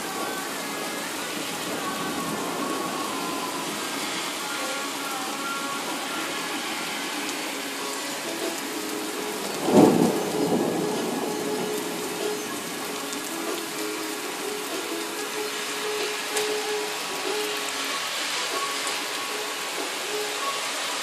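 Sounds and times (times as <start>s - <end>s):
steady rain: 0.0s - 21.0s
thunder clap rumbling: 9.4s - 12.8s.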